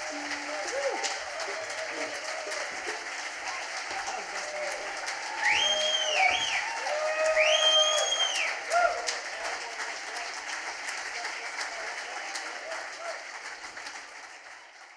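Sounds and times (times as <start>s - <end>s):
audience applauding and cheering: 0.0s - 14.9s
shrill whistle: 5.4s - 6.7s, 7.3s - 8.6s.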